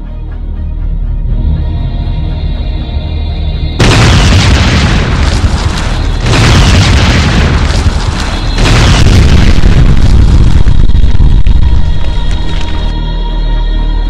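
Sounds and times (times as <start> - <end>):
explosion blasts rumbling: 3.8 - 12.9.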